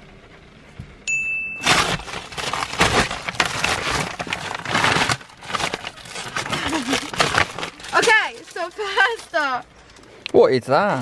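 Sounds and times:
paper bag crinkling and rustling: 0:01.6 - 0:09.6.

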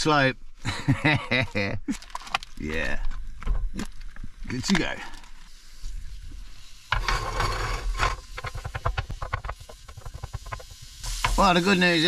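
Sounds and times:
meat sizzling in a pan: 0:05.5 - 0:12.0
spatula scraping a pan: 0:06.6 - 0:11.4.

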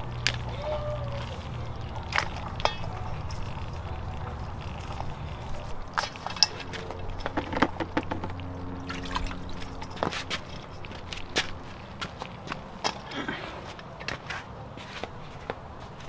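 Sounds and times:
running water trickling: 0:00.0 - 0:12.5
crawfish clicking on steel bowl: 0:01.4 - 0:11.2.

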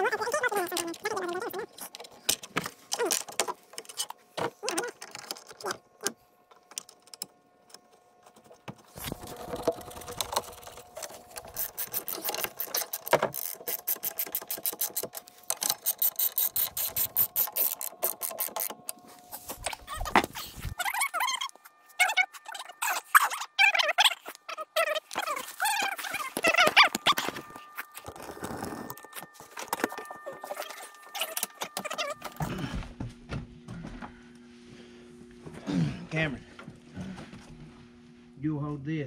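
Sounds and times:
hand ratchet clicking: 0:11.4 - 0:19.0.

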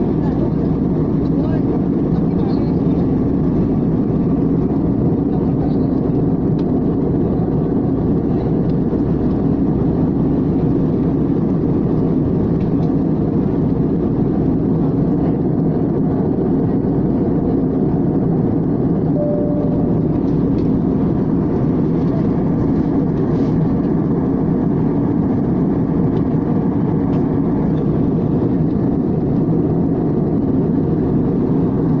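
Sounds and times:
airliner cabin engine rush: 0:00.0 - 0:32.0
short faint tone: 0:19.1 - 0:20.4.

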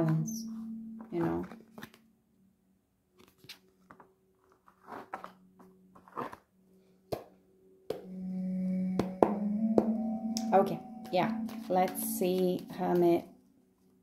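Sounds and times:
faint steady low tone: 0:00.0 - 0:02.1, 0:08.0 - 0:13.4.

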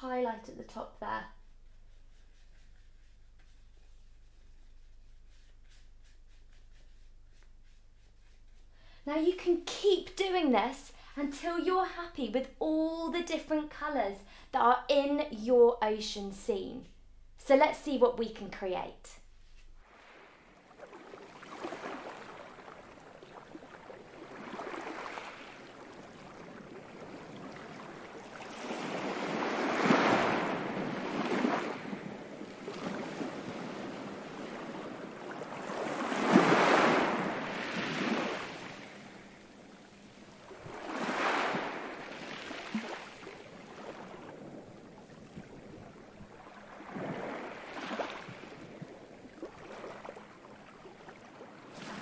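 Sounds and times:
ocean waves breaking: 0:19.8 - 0:52.0.

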